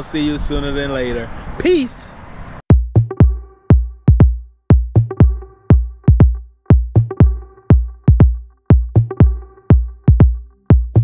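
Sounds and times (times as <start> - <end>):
heavy deep kick drum: 2.7 - 11.0
held synth chord: 5.0 - 11.0.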